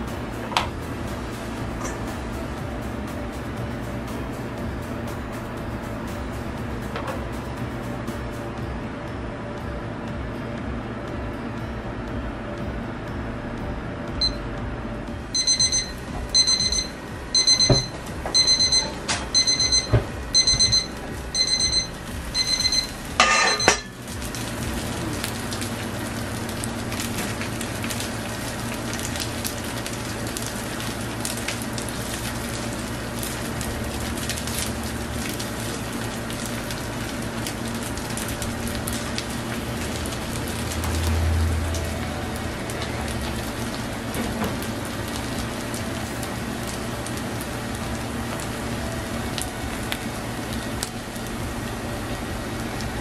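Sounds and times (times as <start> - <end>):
kitchen timer alarm beeping: 14.2 - 14.4, 15.3 - 24.0
paella sizzling in pan: 15.2 - 53.0.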